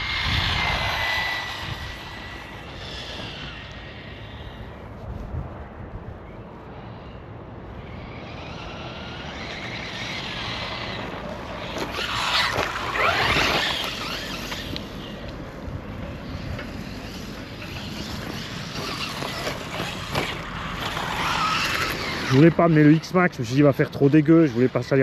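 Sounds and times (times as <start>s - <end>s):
electric motor whining: 0.0s - 4.9s, 7.9s - 15.4s, 16.2s - 25.0s
tyre and ground noise: 0.0s - 25.0s.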